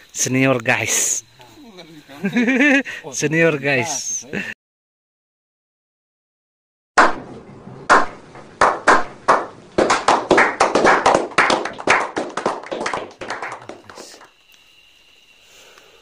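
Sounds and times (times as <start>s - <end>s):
group clapping: 7.9s - 14.3s.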